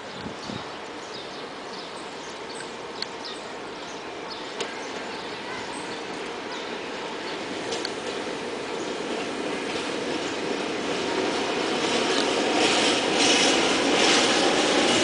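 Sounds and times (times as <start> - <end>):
freight train passing: 0.0 - 15.0
birds chirping: 0.1 - 7.6.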